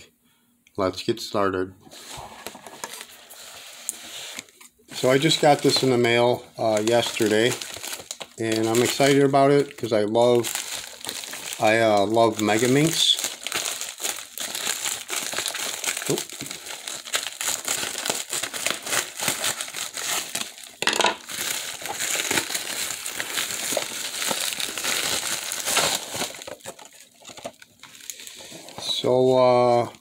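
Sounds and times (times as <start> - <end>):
plastic mailer crinkling: 2.3 - 30.0.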